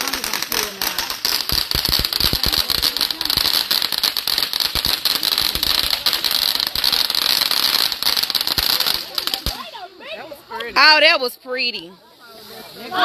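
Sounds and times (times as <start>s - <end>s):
high hiss of sparks: 0.0s - 9.6s
firework fountain crackling: 0.0s - 13.0s.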